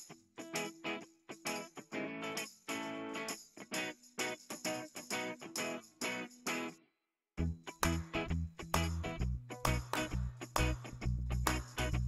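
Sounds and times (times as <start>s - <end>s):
instrumental music with bass and beat: 7.4s - 12.0s.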